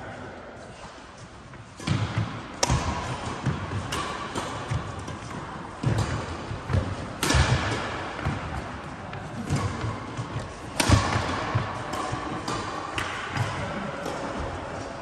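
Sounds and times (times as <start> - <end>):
racket striking shuttlecock: 1.8 - 8.7, 9.4 - 14.6.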